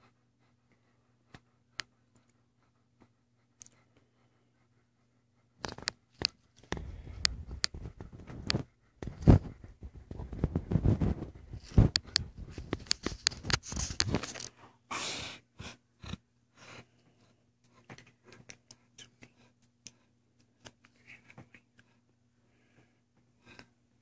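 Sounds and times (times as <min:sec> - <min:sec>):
dog breath: 0:00.0 - 0:20.2
faint low hum: 0:00.0 - 0:24.0
dog fur rustling on microphone: 0:06.8 - 0:14.5.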